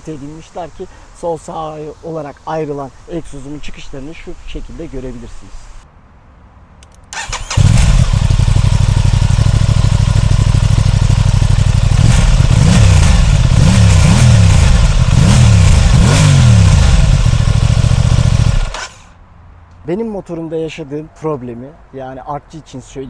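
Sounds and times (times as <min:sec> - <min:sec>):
motorcycle engine revving: 0:07.2 - 0:19.2.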